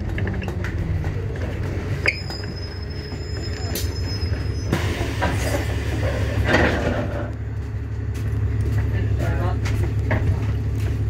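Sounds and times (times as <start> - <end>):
bus engine hum: 0.0 - 11.0
air brake and door hisses: 4.6 - 6.7.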